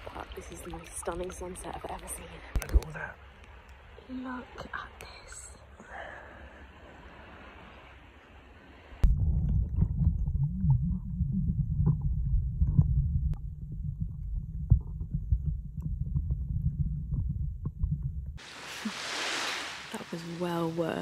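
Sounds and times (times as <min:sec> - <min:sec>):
water lapping: 0:00.0 - 0:09.0, 0:18.4 - 0:21.0
muffled underwater rumble: 0:09.0 - 0:18.4.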